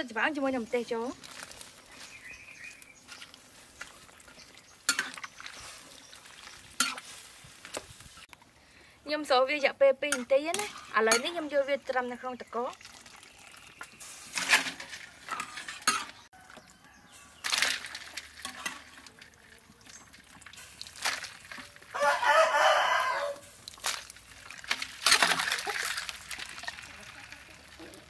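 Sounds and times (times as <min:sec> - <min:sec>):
rooster crowing: 0:16.3 - 0:17.4, 0:21.9 - 0:23.5.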